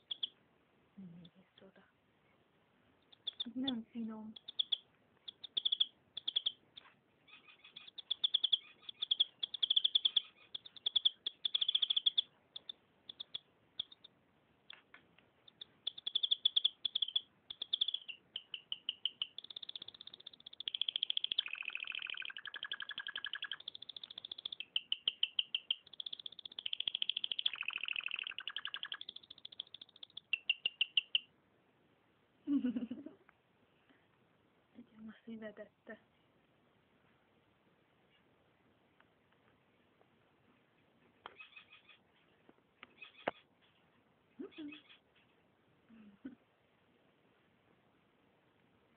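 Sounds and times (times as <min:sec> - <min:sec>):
canary singing trills: 0:00.0 - 0:00.4, 0:03.0 - 0:14.8, 0:15.4 - 0:31.3, 0:41.3 - 0:43.8, 0:44.4 - 0:45.3.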